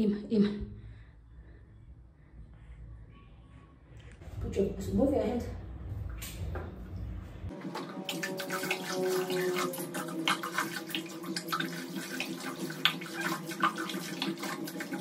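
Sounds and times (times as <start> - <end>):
running water splashing into basin: 7.6 - 15.0.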